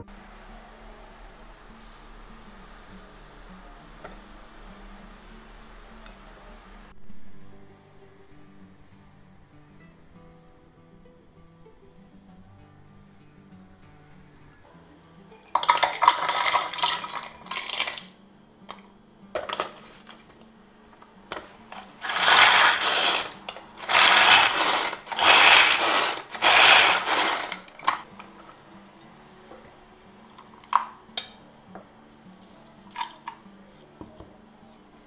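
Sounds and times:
walnuts rattling: 0:15.6 - 0:18.1, 0:21.8 - 0:28.1
food chopper whirring: 0:22.0 - 0:28.0.

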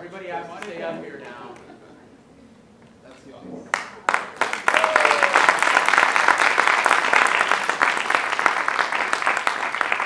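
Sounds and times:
audience applauding: 0:03.7 - 0:10.0.

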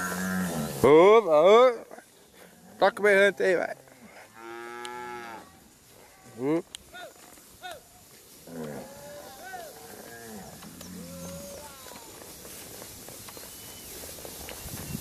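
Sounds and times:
cattle mooing: 0:03.6 - 0:05.6, 0:08.5 - 0:11.8.

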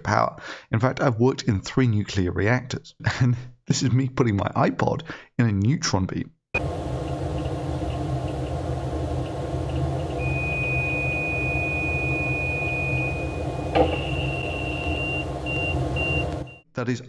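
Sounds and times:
low machinery hum: 0:06.6 - 0:16.6
steady high alarm tone: 0:06.6 - 0:16.6
alarm beeps: 0:10.1 - 0:16.6.

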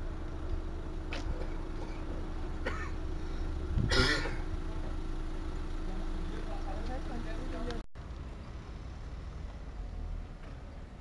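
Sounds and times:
low outdoor rumble and hum: 0:00.0 - 0:11.0
person clearing throat: 0:01.1 - 0:03.0, 0:03.8 - 0:04.4.

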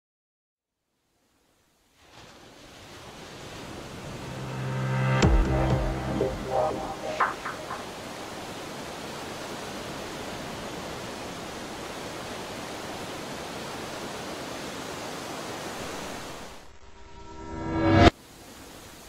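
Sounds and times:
steady rushing noise: 0:03.7 - 0:08.8
music: 0:04.2 - 0:07.9.

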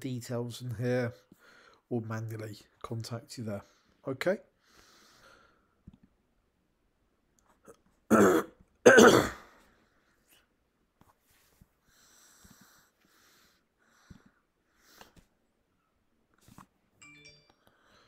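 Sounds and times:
person coughing: 0:08.1 - 0:09.5.

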